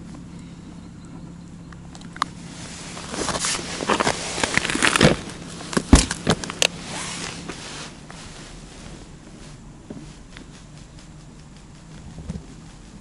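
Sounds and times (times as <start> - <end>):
clothing rustling: 2.4 - 10.6
dull thump: 5.8 - 6.7.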